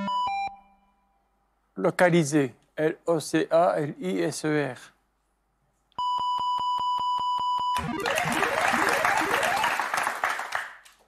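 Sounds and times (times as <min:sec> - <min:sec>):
steady electronic beep: 0:06.0 - 0:09.7
rapid electronic clicks: 0:07.8 - 0:09.8.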